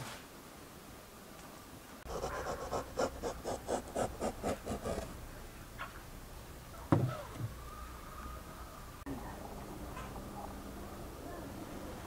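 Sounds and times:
hands rubbing soft dough: 2.1 - 5.1.

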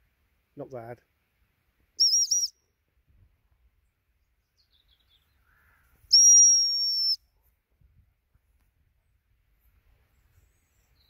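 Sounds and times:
short whistle pips: 2.0 - 2.6, 6.1 - 7.2
long whistle blast: 6.1 - 7.2.

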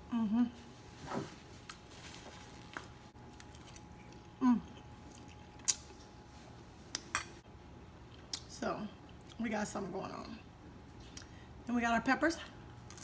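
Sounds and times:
woman humming: 0.0 - 0.7, 4.4 - 4.8.

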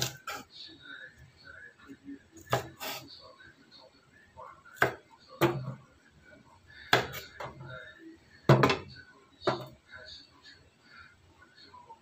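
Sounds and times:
knife chopping on wooden board: 2.5 - 2.9, 4.8 - 5.7, 6.9 - 7.2.

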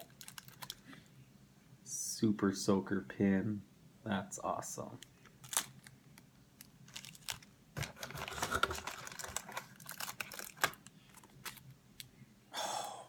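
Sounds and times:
plastic packaging crinkling: 0.0 - 0.8, 5.2 - 12.1.

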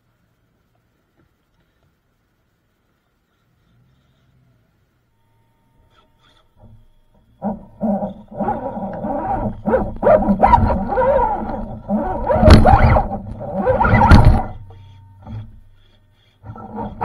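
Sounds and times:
electric motor whining: 5.9 - 17.0.

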